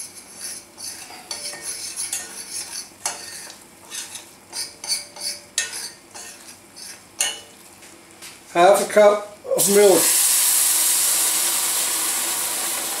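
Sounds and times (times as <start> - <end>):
metal spoon scraping pot: 0.0 - 7.4.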